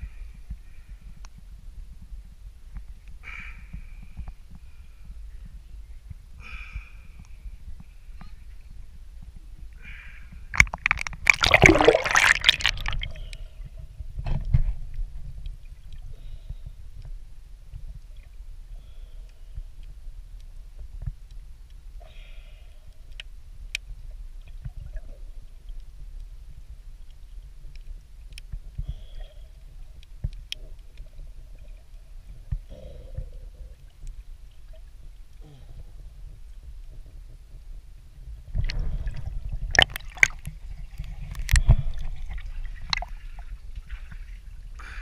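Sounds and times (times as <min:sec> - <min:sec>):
dull underwater rumble: 0:00.0 - 0:45.0
faint gurgles: 0:09.7 - 0:14.3, 0:28.6 - 0:37.2, 0:38.5 - 0:45.0
water splashing from swimming: 0:10.5 - 0:13.3, 0:39.7 - 0:44.5.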